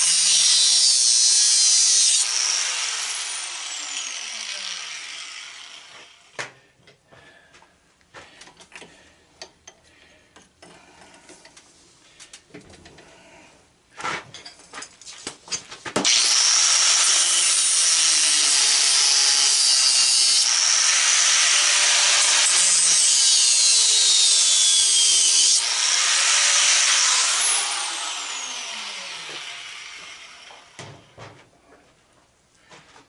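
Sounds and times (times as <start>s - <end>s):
angle grinder grinding metal: 0.0s - 6.4s, 16.0s - 30.8s.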